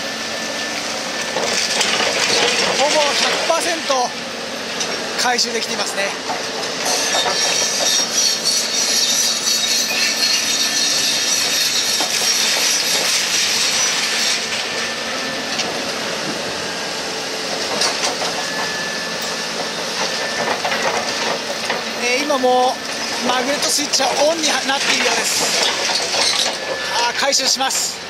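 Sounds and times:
concrete rubble scraping and pouring: 1.5s - 4.0s, 20.2s - 27.5s.

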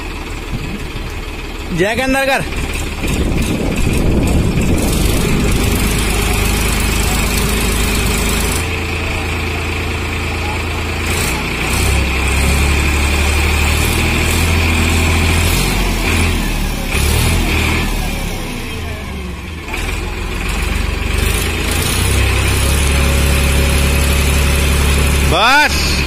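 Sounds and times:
tractor engine hum: 0.0s - 26.0s.

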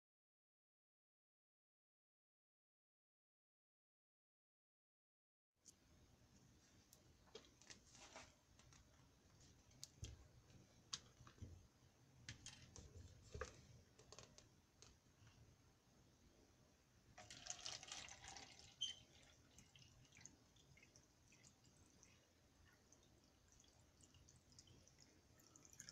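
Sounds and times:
water pouring into plastic cup: 17.2s - 25.9s.

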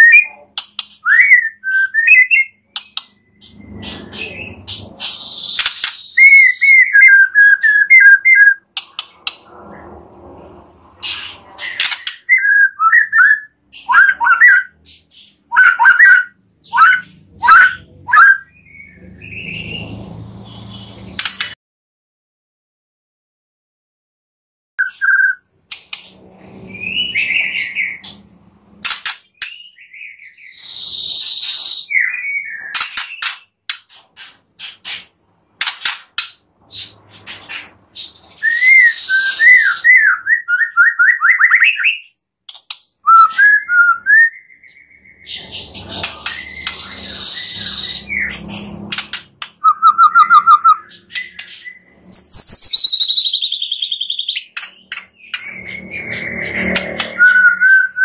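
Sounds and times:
bird singing varied song: 0.0s - 9.1s, 11.1s - 20.1s, 29.2s - 34.5s, 36.2s - 58.0s.

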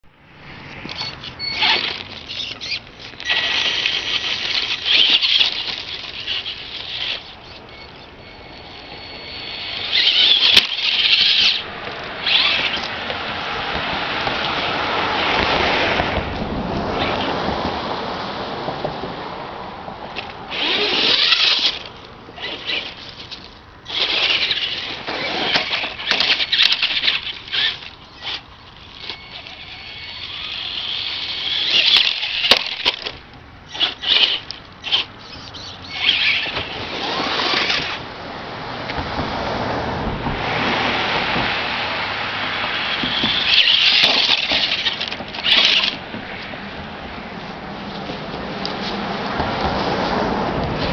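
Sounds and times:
electric motor whining: 0.8s - 12.9s, 20.5s - 38.0s, 42.9s - 46.0s
tyres running over gravel: 0.8s - 17.2s, 20.1s - 38.3s, 41.0s - 50.9s.

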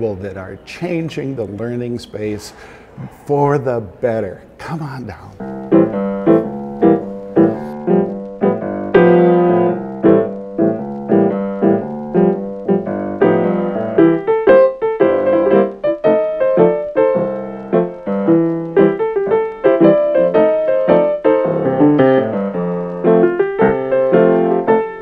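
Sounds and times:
piano notes: 0.0s - 25.0s.

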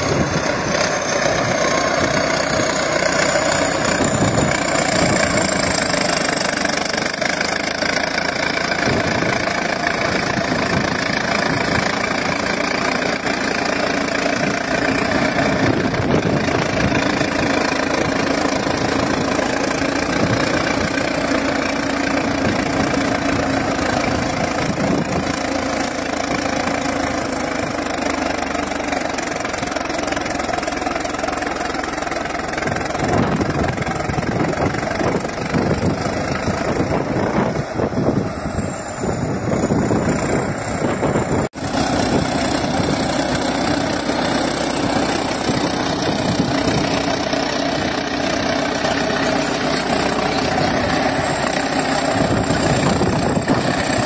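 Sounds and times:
bulldozer diesel engine under load: 0.0s - 54.0s
thin high whine: 37.1s - 54.0s.

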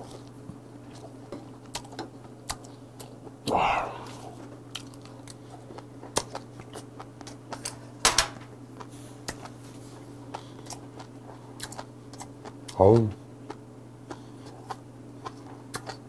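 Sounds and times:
steady low hum: 0.0s - 16.0s
chewing mouth clicks and smacks: 0.9s - 3.2s, 4.7s - 7.8s, 10.3s - 16.0s.

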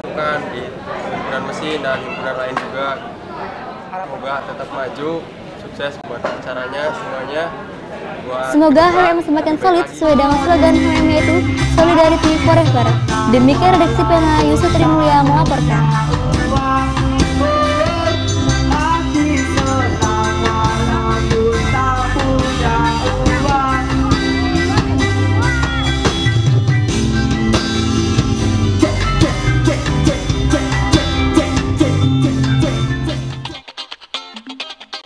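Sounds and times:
person singing: 9.8s - 25.9s
guitars: 10.0s - 35.0s
drum kit beat: 10.1s - 33.6s.

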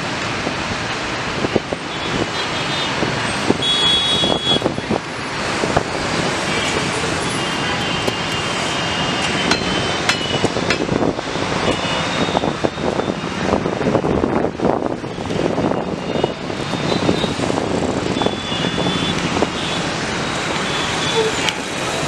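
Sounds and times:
road traffic noise: 0.0s - 22.0s
scattered clicks and knocks: 9.2s - 11.0s.

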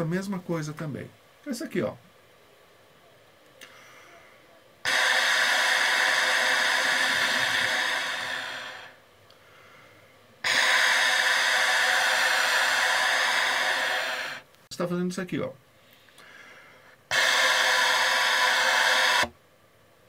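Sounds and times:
trumpet long breathy tones: 4.8s - 14.5s, 16.2s - 19.3s.

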